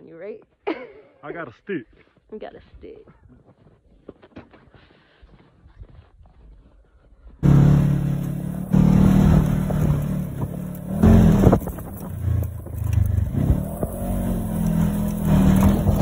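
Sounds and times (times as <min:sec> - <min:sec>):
open cab noise: 0:07.4 - 0:16.0
utility vehicle engine revving: 0:07.4 - 0:16.0.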